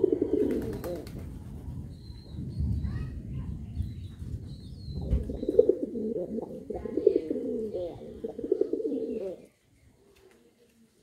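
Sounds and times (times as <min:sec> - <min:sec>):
pigeons cooing: 0:00.0 - 0:01.1, 0:05.0 - 0:09.5.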